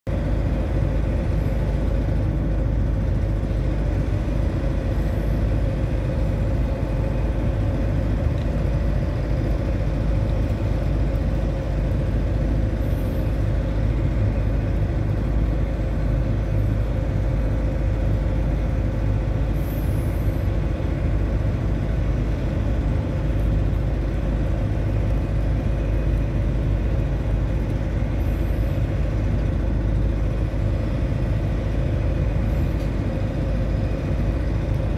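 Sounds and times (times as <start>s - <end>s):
constant hum: 0.1s - 34.9s
ship engines rumbling: 0.1s - 34.9s.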